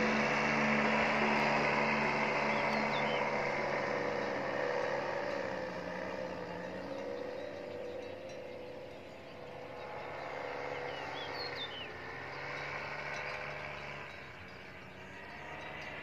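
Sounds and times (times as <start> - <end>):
bird chirps: 0.0 - 16.0
distant paramotor engine humming: 0.0 - 16.0.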